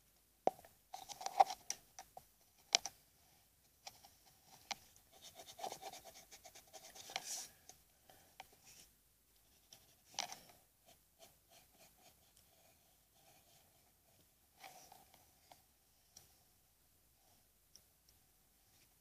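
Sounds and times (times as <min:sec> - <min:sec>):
pencil scratching on paper: 0:04.6 - 0:07.5, 0:10.8 - 0:14.9.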